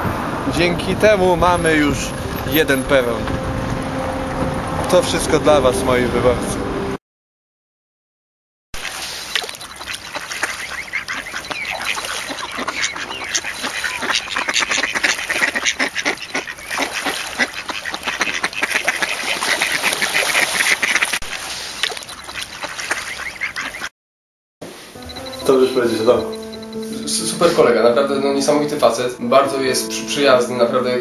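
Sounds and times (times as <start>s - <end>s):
ducks quacking: 9.4s - 23.9s.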